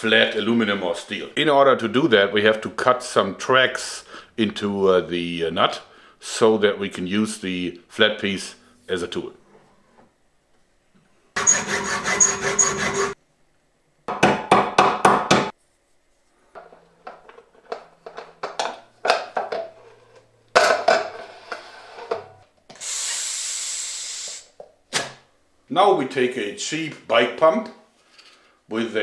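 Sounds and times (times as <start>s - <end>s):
hand tool cutting metal: 11.4s - 13.2s
breath blown into bottle: 22.7s - 24.6s.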